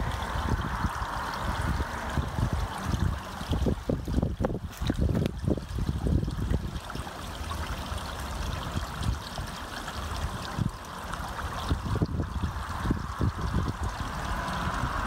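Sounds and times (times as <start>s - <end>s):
low rumbling: 0.0s - 6.8s, 10.0s - 15.0s
water trickling in a pond: 0.0s - 15.0s.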